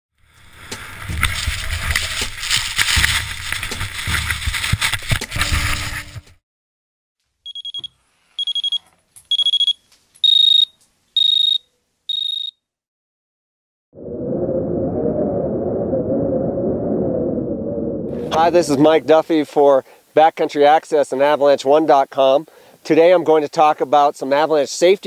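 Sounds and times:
short high electronic beeps: 0:07.5 - 0:12.5
low droning tone: 0:14.0 - 0:18.4.

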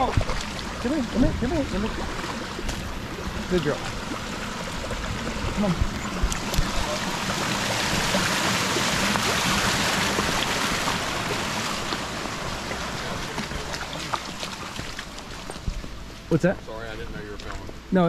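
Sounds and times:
stream water rushing: 0:00.0 - 0:16.4.

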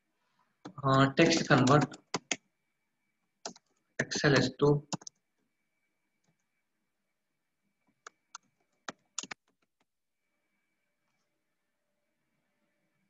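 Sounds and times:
keyboard keystrokes: 0:01.3 - 0:02.4, 0:08.0 - 0:09.6.

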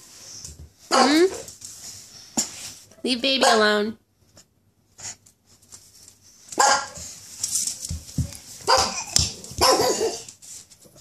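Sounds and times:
dog barking: 0:06.6 - 0:07.0, 0:08.7 - 0:10.2.

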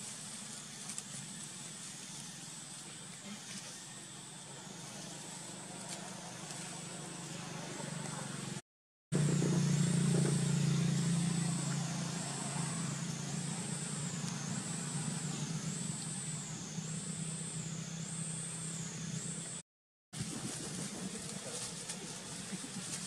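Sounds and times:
low engine hum: 0:00.0 - 0:19.6
high whine rising and falling: 0:04.4 - 0:19.6.

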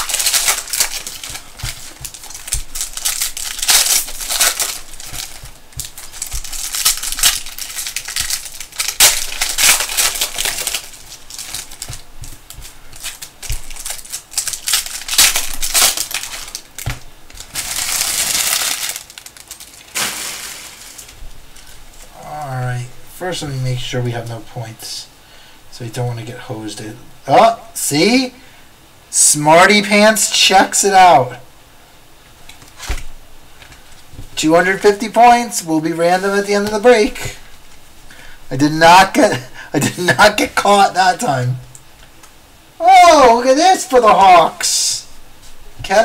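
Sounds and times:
cards being handled: 0:00.0 - 0:22.1
wrappers crinkling and tearing: 0:00.0 - 0:22.2.

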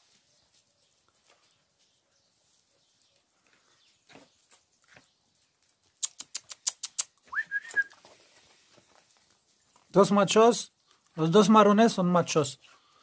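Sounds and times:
sharp kissing clicks: 0:06.0 - 0:07.8
rising whistle: 0:07.3 - 0:08.0.

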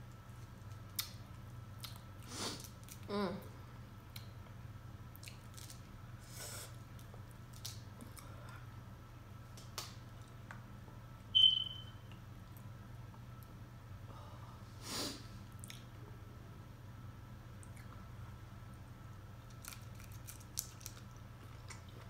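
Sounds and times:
steady low hum: 0:00.0 - 0:22.0
wet chewing sounds: 0:05.1 - 0:05.8, 0:19.4 - 0:22.0
sharp high squeak: 0:11.4 - 0:12.1.

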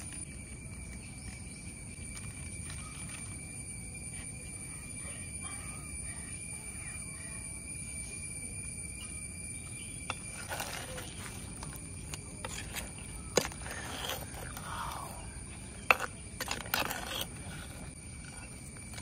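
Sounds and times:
steady high whine: 0:00.0 - 0:19.0
ladle scraping clay pot: 0:10.1 - 0:19.0.

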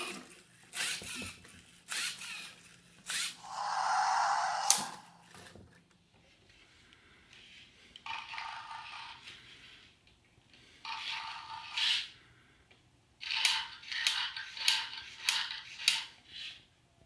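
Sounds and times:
toy robot motors whirring: 0:00.7 - 0:04.9, 0:13.2 - 0:16.6.

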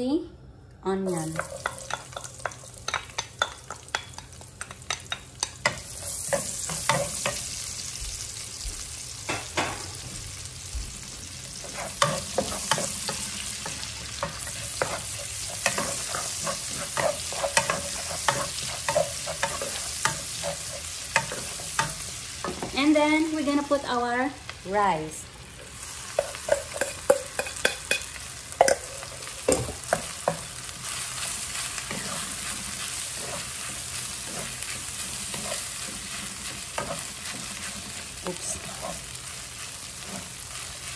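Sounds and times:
onion sizzling in a pan: 0:01.1 - 0:40.9
wooden spatula scraping a pan: 0:30.0 - 0:40.9.

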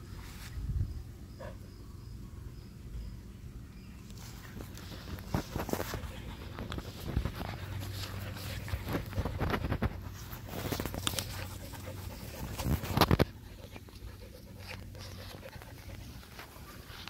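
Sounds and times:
ball scuffing and knocking on grass: 0:04.1 - 0:11.6
puppy panting: 0:04.8 - 0:17.0.

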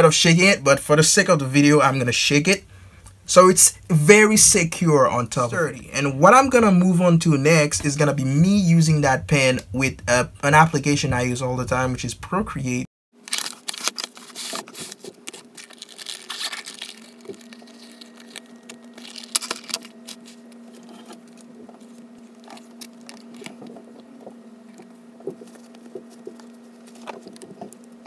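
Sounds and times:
faint steady hum: 0:00.0 - 0:28.0
plastic wrapping crinkling: 0:13.2 - 0:28.0.

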